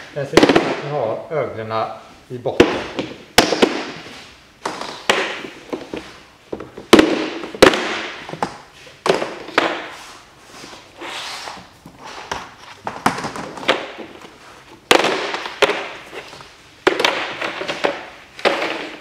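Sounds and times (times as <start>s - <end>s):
scraping rustle of tiles: 9.9s - 12.8s.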